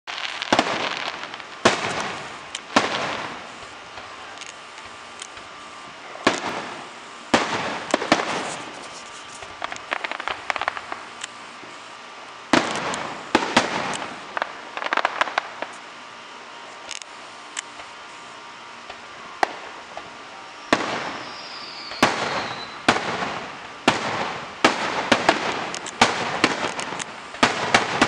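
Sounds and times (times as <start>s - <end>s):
fireworks bursting: 0.0s - 28.0s
crackling pops: 0.1s - 5.6s, 6.2s - 11.4s, 12.3s - 15.9s, 18.8s - 20.1s, 21.9s - 28.0s.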